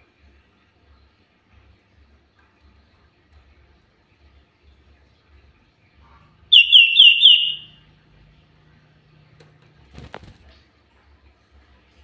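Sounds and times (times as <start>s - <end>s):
bird whistling downslurred notes: 6.5s - 7.8s.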